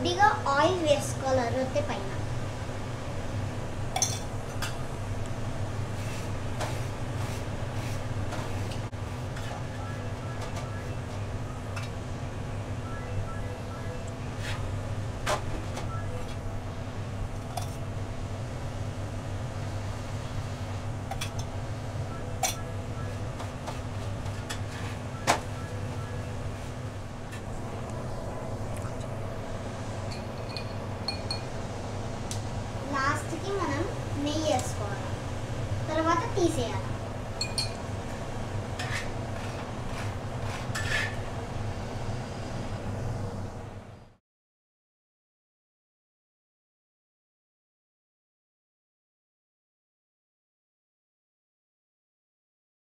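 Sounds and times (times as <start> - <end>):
gas burner rumble: 0.0 - 12.8, 14.0 - 44.2
steady low hum: 0.0 - 44.2
metal spatula scraping a griddle: 24.3 - 25.0, 38.8 - 41.3.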